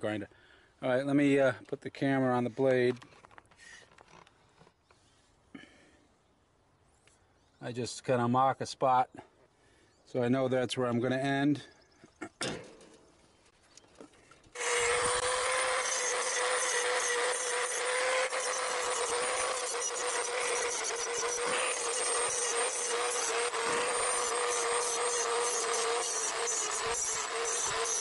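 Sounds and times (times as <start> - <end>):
die grinder whining: 14.5 - 28.0
grinding stone on saw teeth: 14.6 - 28.0.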